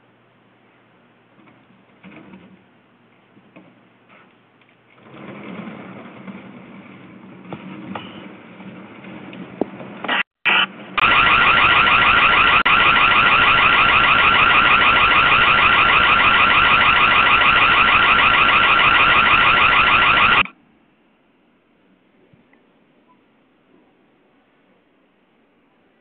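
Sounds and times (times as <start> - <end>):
warbling security siren: 10.5 - 20.5.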